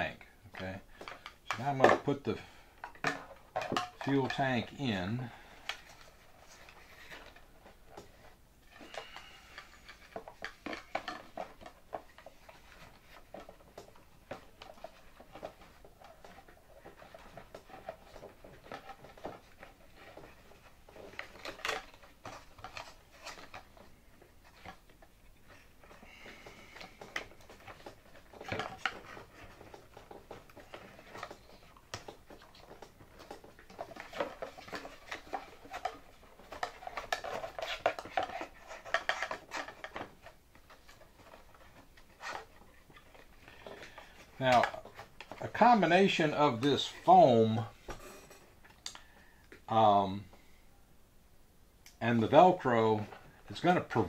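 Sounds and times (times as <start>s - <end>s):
handling clicks taps and rustles: 9.6s - 49.7s.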